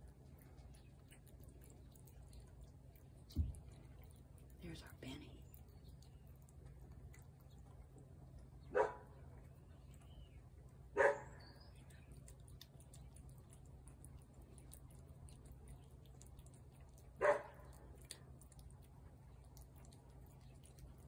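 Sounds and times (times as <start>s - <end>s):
dog barking: 8.7s - 9.2s, 10.9s - 11.4s, 17.2s - 17.8s.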